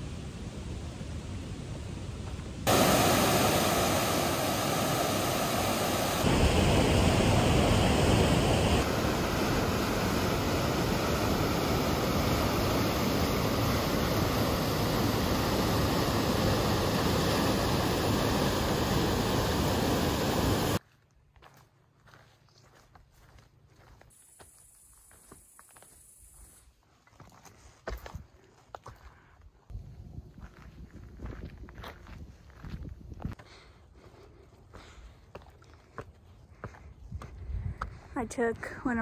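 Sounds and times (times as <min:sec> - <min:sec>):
rushing water: 0:02.7 - 0:20.8.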